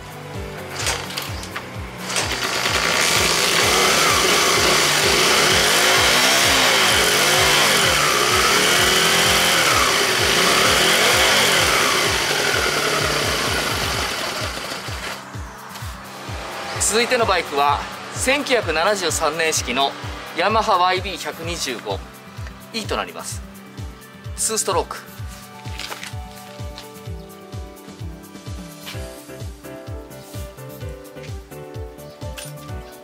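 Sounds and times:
motorcycle engine kick-started: 0:00.7 - 0:15.3
motorcycle engine revving: 0:00.7 - 0:21.0.

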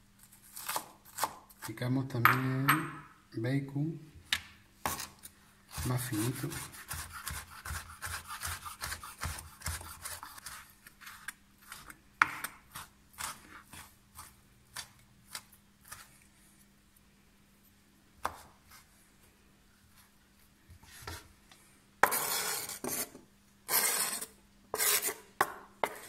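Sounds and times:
knife chopping on wooden board: 0:05.7 - 0:10.5, 0:18.2 - 0:18.5.

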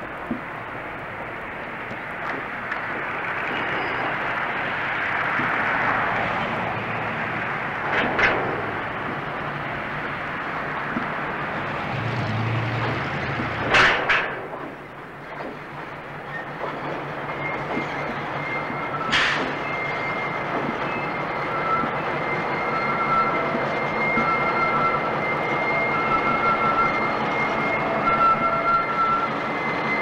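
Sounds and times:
locomotive rumble: 0:00.0 - 0:30.0
metallic clanks: 0:07.8 - 0:10.0, 0:12.7 - 0:22.0.

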